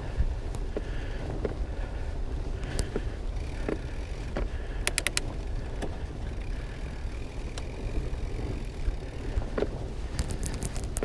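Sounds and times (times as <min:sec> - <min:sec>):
bike tyres rumbling on dirt: 0:00.0 - 0:11.0
wind on microphone: 0:00.0 - 0:11.0
sharp clicks: 0:04.8 - 0:05.9.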